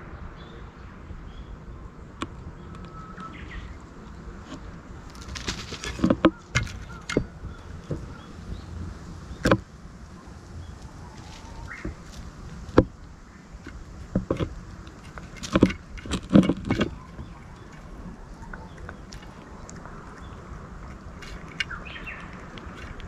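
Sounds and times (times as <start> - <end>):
cat eating from metal plate: 13.6 - 23.0.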